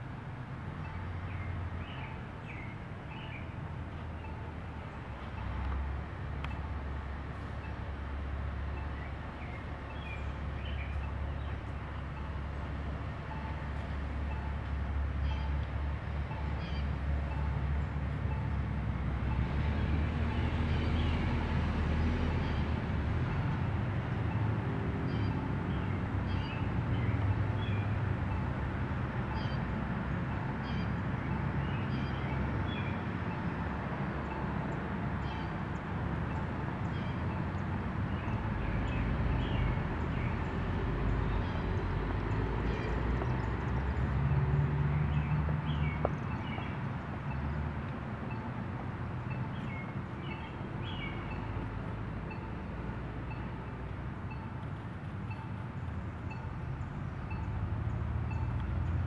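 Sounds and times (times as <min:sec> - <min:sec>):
bird chirps: 0:08.8 - 0:11.6.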